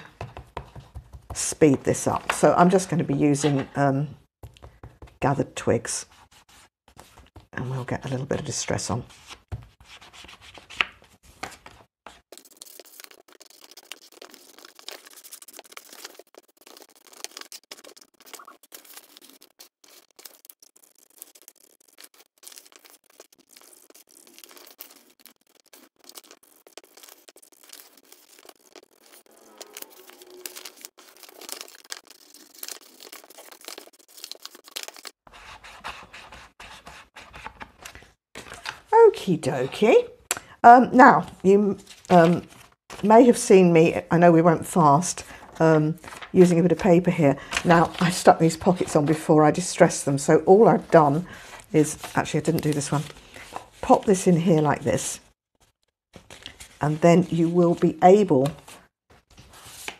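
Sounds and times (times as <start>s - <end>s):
inking tool scratching paper: 12.3s - 36.8s.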